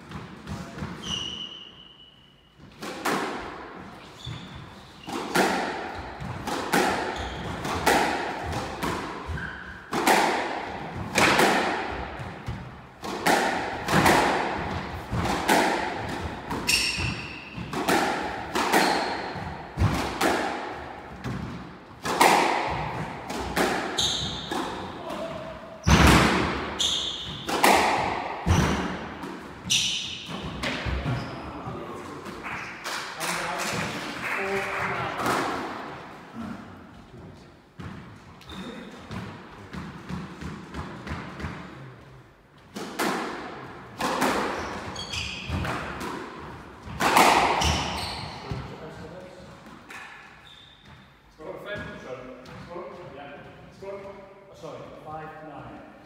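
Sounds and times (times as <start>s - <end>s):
squash ball hitting rackets and walls: 0.0s - 1.7s, 2.6s - 37.0s, 37.7s - 41.9s, 42.6s - 54.2s
shoes squeaking on wooden floor: 4.0s - 5.2s, 7.1s - 7.7s, 16.5s - 17.7s, 24.0s - 24.6s, 44.6s - 45.7s, 47.6s - 48.7s, 50.4s - 51.2s.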